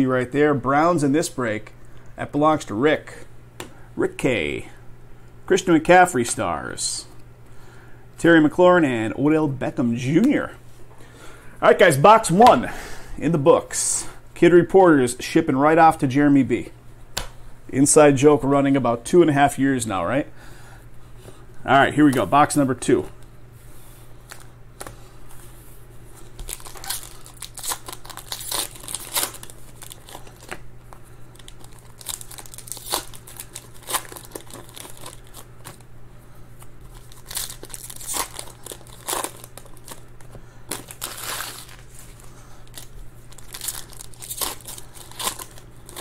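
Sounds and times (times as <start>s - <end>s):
low steady hum: 0.0s - 46.0s
foil wrappers crinkling and tearing: 26.2s - 35.9s, 36.8s - 46.0s.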